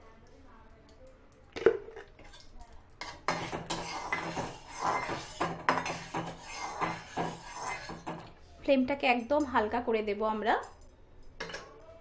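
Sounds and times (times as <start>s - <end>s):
spatula scraping metal pan: 3.0s - 8.3s.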